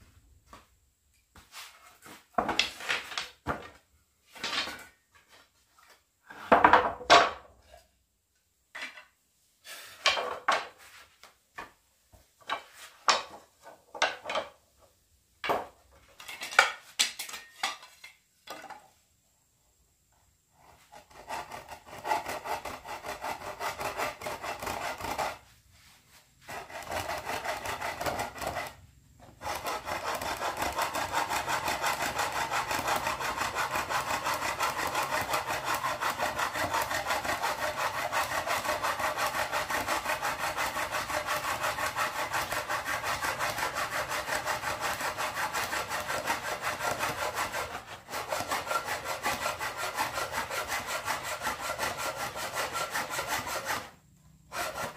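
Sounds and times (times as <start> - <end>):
handsaw cutting wood: 20.6 - 25.5, 26.4 - 54.9.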